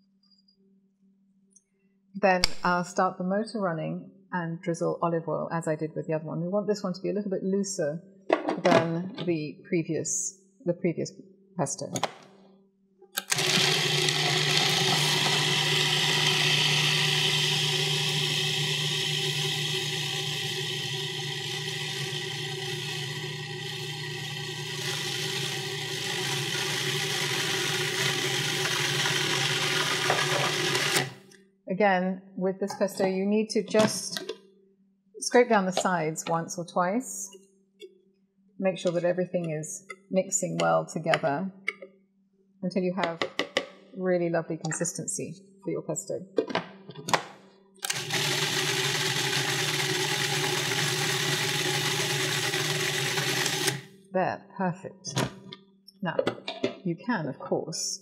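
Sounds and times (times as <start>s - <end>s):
food processor motor whirring: 13.2s - 31.3s, 47.8s - 53.9s.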